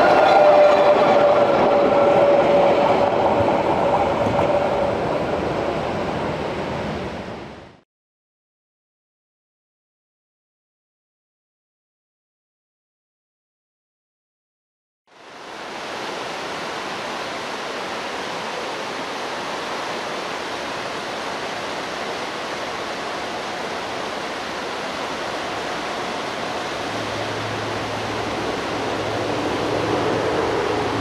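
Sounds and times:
distant electric train hum: 0.0s - 7.6s, 15.5s - 31.0s
rushing outdoor noise: 0.0s - 7.8s, 15.1s - 31.0s.

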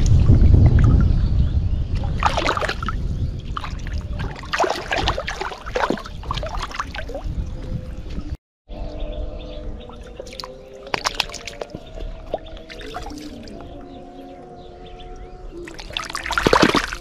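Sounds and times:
water splashing from thrashing fish: 2.2s - 3.0s, 3.6s - 7.2s, 10.2s - 13.5s, 15.6s - 17.0s.

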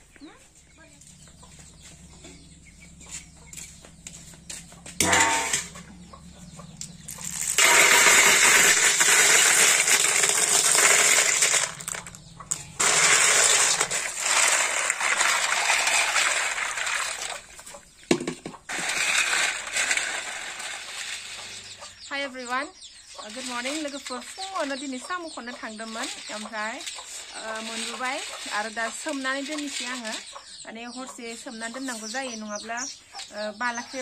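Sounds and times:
snail shells rattling on metal bowl: 5.0s - 5.8s, 6.9s - 22.1s, 23.1s - 30.4s.

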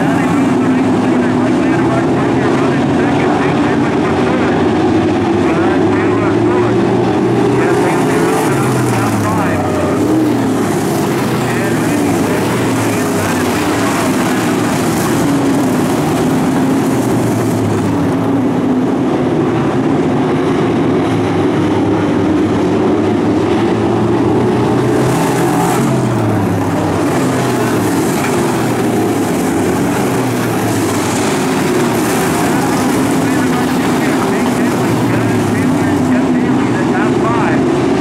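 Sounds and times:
race car engines roaring past: 0.0s - 38.0s.

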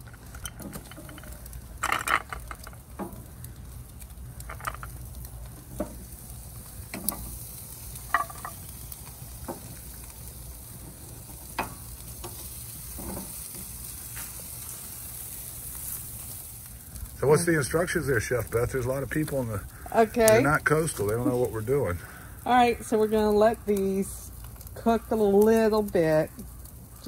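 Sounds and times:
grill sizzling hiss: 0.0s - 27.0s
shells knocking on grill grate: 0.2s - 3.4s, 4.4s - 6.0s, 6.9s - 9.8s, 11.2s - 13.7s.

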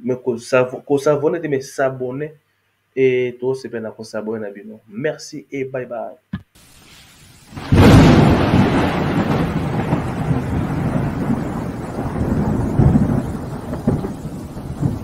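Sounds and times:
rolling thunder rumble: 7.5s - 15.0s
thunder crack: 7.5s - 15.0s.

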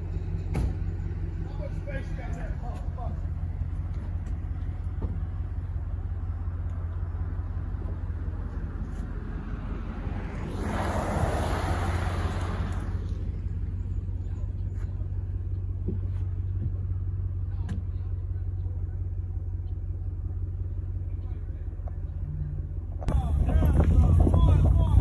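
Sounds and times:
vehicle engine humming: 0.0s - 25.0s
rushing noise: 9.7s - 13.1s.

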